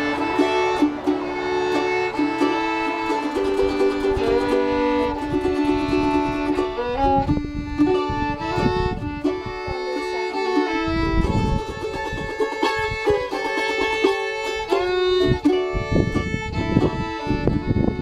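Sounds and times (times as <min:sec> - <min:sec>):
fiddle melody: 0:00.0 - 0:18.0
mandolin picking: 0:00.0 - 0:18.0.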